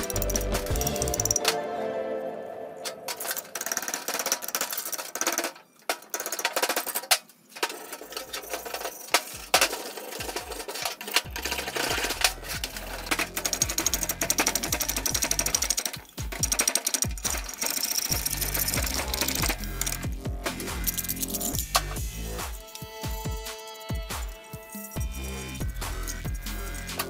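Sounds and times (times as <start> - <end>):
wire brush scrubbing metal: 3.2 - 27.0
metal scraper rasping on metal: 7.7 - 27.0.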